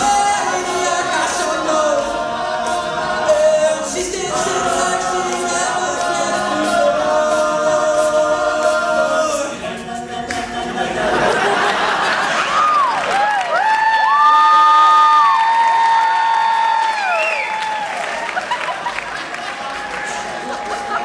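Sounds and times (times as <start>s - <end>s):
male choir singing chords: 0.0s - 12.5s
audience cheering and whooping: 11.1s - 21.0s.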